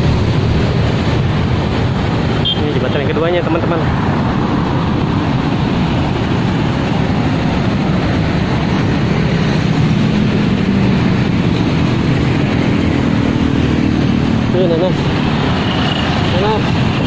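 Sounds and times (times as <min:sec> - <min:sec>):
road traffic rumbling: 0:00.0 - 0:17.0
engine hum: 0:03.4 - 0:17.0.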